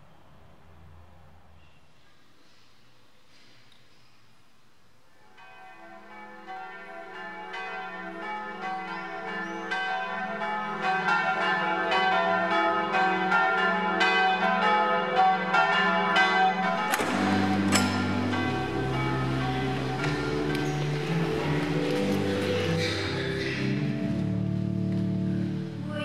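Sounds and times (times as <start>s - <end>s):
church bells ringing: 5.2s - 25.6s.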